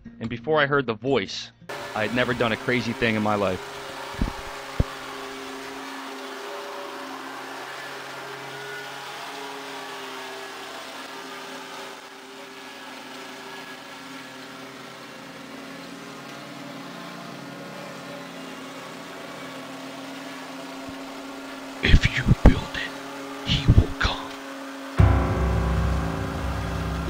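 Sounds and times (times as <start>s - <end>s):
lawn mower engine running: 1.7s - 21.9s.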